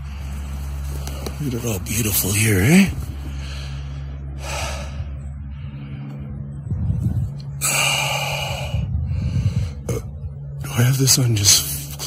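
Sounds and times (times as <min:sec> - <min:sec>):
person breathing loudly: 0:00.0 - 0:01.4, 0:03.0 - 0:06.6, 0:07.5 - 0:10.5
low drone: 0:00.0 - 0:12.0.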